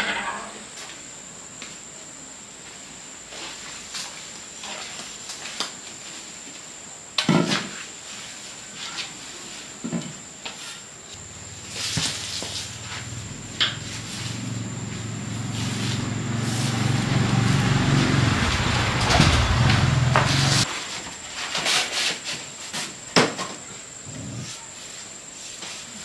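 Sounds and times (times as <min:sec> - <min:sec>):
broom sweeping concrete: 0:07.6 - 0:09.8, 0:10.5 - 0:10.9, 0:11.6 - 0:23.0, 0:24.4 - 0:26.0
faint high whine: 0:10.6 - 0:21.2.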